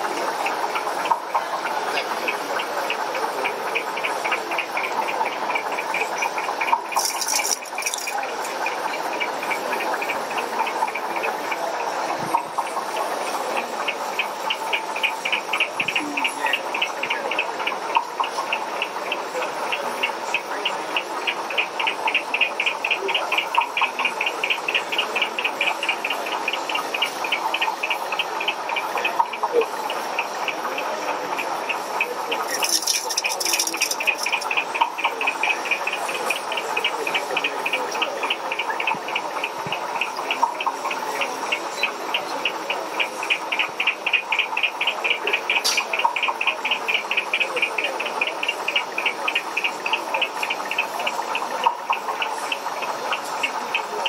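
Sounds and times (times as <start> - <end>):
winch mechanism rapid ticking: 0.0 - 54.0.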